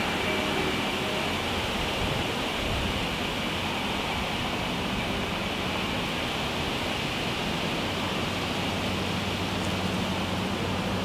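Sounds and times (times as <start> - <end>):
light breeze rushing: 0.0 - 11.0.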